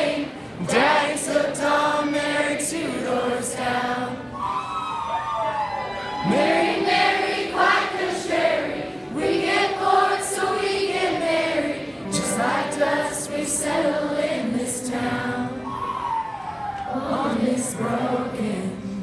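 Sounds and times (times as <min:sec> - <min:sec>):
woman singing into microphone: 0:09.1 - 0:15.8, 0:16.9 - 0:19.0.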